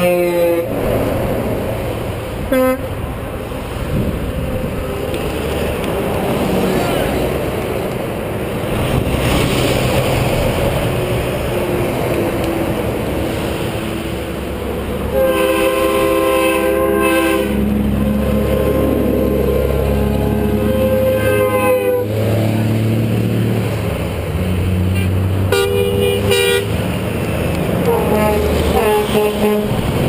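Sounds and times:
truck air horn blasts: 0.0s - 0.7s, 2.5s - 3.0s, 15.0s - 22.2s, 25.5s - 26.8s, 27.8s - 29.9s
diesel engine and road rumble: 0.0s - 30.0s.

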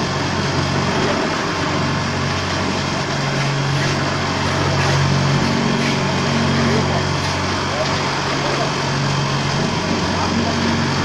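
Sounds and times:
vibrator table humming: 0.0s - 11.0s.

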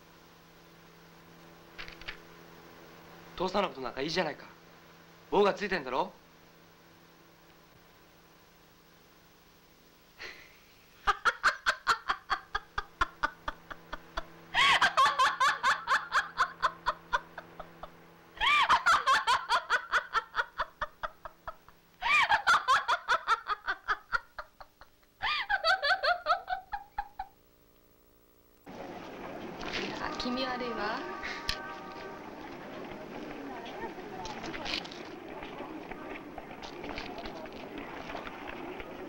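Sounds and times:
faint steady hum: 0.0s - 39.0s
hearty laughter: 10.2s - 27.4s.

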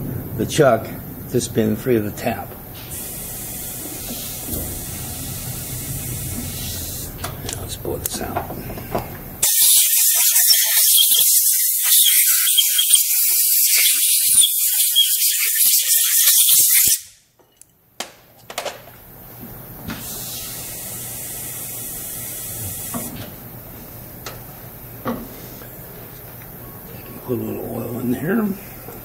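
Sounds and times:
machine low hum: 0.0s - 9.4s
compressed air hissing: 2.8s - 7.2s, 9.4s - 17.0s, 20.0s - 23.1s.

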